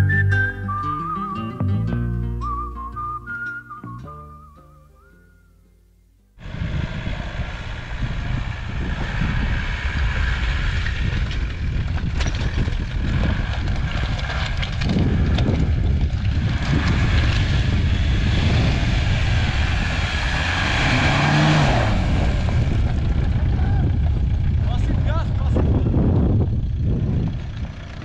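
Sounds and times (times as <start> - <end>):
van engine running: 6.4 - 28.0
stones crackling under tyres: 8.4 - 25.6.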